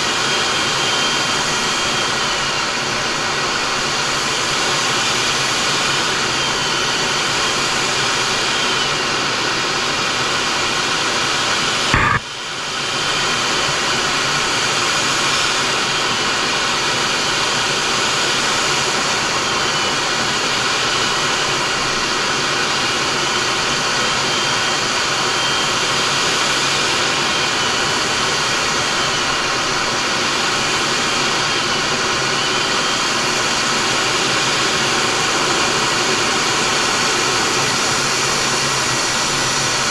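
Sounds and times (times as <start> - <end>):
jet engines and airflow in cockpit: 0.0 - 39.9
sharp click: 11.9 - 12.2.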